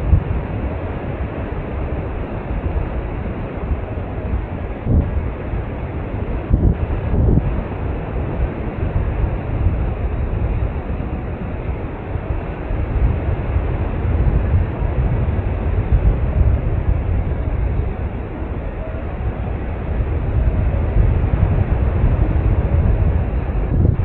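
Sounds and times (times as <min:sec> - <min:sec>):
wind rushing over microphone: 0:00.0 - 0:24.0.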